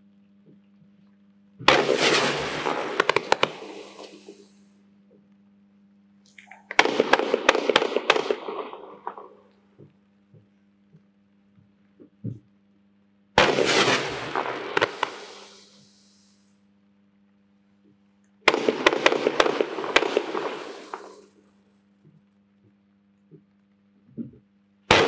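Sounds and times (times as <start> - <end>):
fireworks volleys cracking: 1.6 - 4.8, 6.3 - 9.6, 13.4 - 16.4, 18.4 - 21.5.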